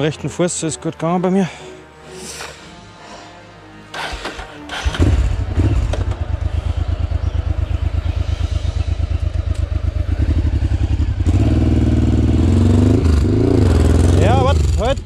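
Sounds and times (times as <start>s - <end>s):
motorcycle engine starting and idling: 3.9s - 15.0s.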